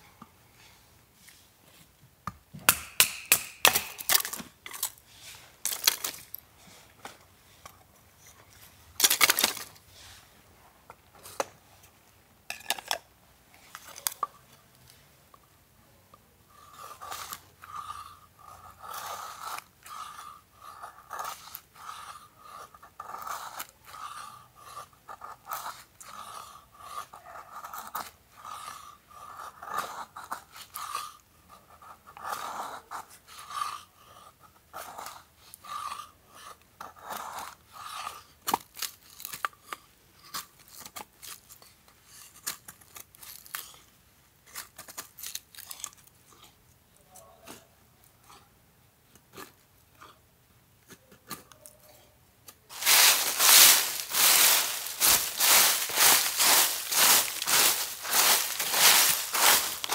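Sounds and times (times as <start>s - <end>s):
repeated crunching: 5.6s - 6.4s, 52.7s - 59.9s.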